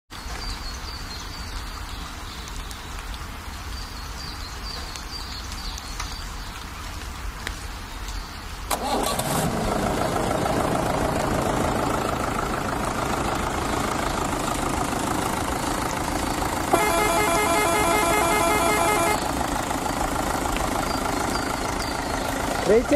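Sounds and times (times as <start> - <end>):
steady rain: 0.1 - 22.9
vehicle engine running: 8.9 - 22.9.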